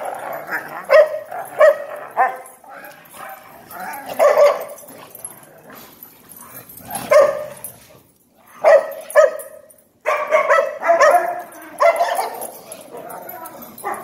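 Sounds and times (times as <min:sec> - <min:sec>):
dog barking: 0:00.9 - 0:02.5, 0:04.1 - 0:04.8, 0:07.0 - 0:07.6, 0:08.6 - 0:13.2, 0:13.8 - 0:14.0.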